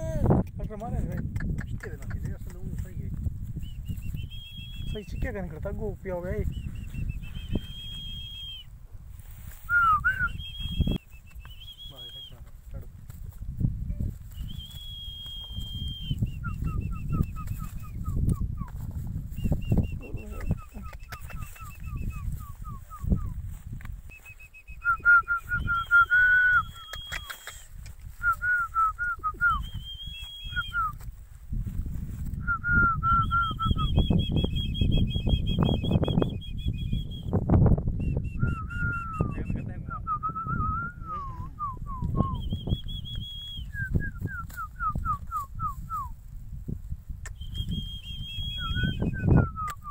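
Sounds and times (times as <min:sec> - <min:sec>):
high whistled notes: 0:06.6 - 0:08.7, 0:09.6 - 0:12.4, 0:13.9 - 0:18.5, 0:24.1 - 0:27.6, 0:47.3 - 0:49.9.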